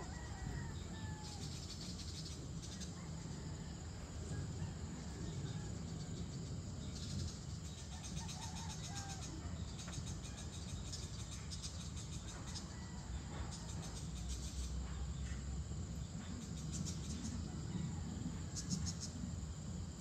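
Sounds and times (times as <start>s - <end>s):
insect trilling: 0.0s - 20.0s.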